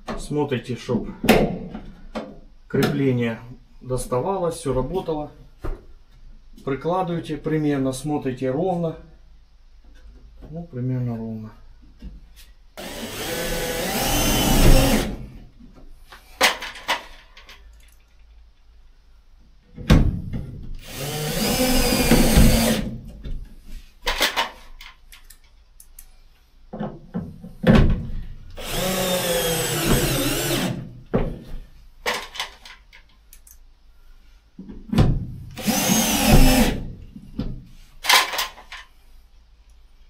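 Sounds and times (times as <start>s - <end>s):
cordless drill driver running: 12.8s - 15.3s, 20.8s - 23.0s, 28.6s - 30.8s, 35.6s - 36.9s.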